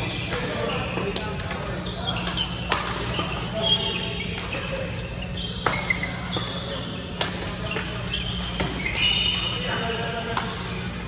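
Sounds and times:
shoes squeaking on floor: 0.0s - 11.0s
racquet striking shuttlecock: 5.6s - 9.4s.

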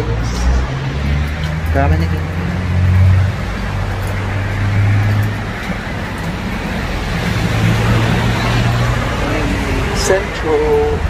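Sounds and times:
cars passing: 0.0s - 11.0s.

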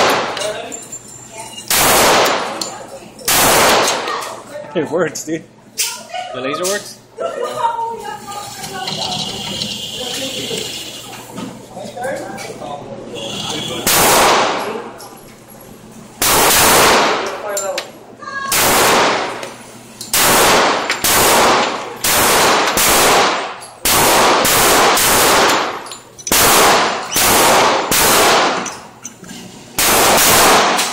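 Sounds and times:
pistol shots echoing indoors: 0.0s - 0.5s, 1.7s - 4.4s, 13.8s - 14.8s, 16.2s - 17.4s, 18.5s - 19.5s, 20.1s - 28.8s, 29.8s - 30.9s.

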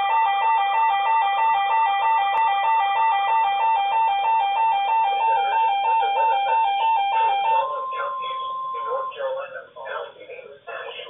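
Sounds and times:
two-tone alarm: 0.0s - 9.5s
steady warning tone: 0.0s - 11.0s
voice announcement: 5.0s - 11.0s.

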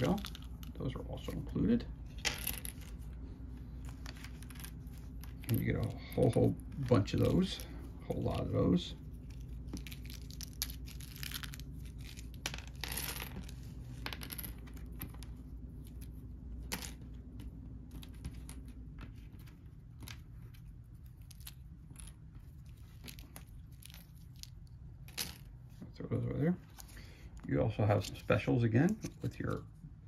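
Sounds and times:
tokens sliding on table: 11.9s - 15.2s.

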